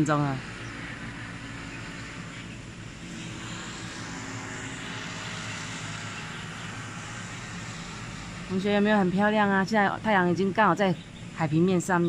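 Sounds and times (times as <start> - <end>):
outdoor rushing noise: 0.0 - 9.5
faint low drone: 0.0 - 12.0.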